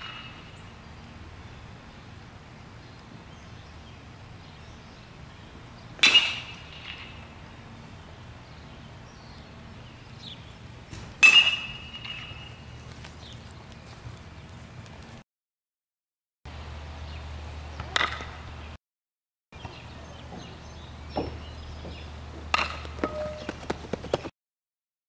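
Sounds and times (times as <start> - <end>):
metal bat pinging balls: 6.0 - 7.3, 11.2 - 12.6, 21.2 - 24.0.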